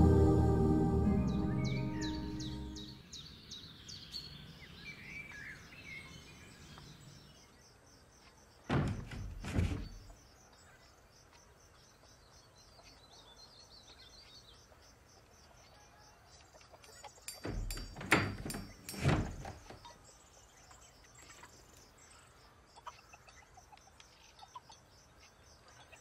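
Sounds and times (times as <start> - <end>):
birds chirping: 0.0 - 15.6, 16.8 - 26.0
dull thuds: 8.7 - 10.2, 17.4 - 19.8.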